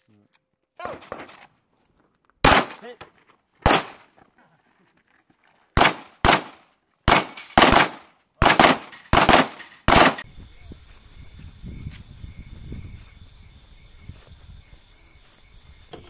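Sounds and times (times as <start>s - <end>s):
gunshots with echo: 5.8s - 10.2s.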